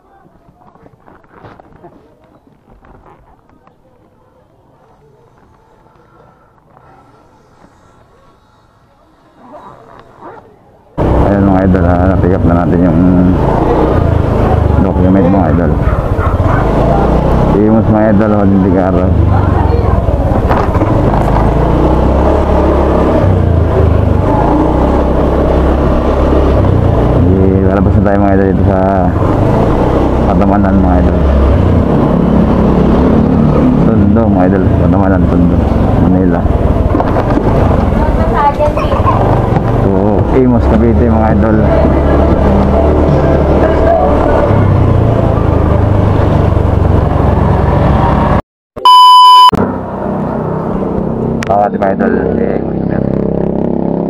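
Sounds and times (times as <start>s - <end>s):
road noise: 0.0s - 54.0s
motorcycle engine droning: 3.6s - 54.0s
test-tone beep: 48.8s - 49.6s.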